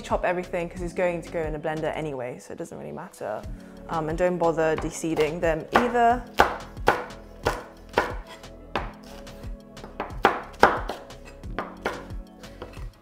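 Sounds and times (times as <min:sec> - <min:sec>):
knife chopping on plastic board: 0:04.8 - 0:09.2, 0:09.8 - 0:12.9.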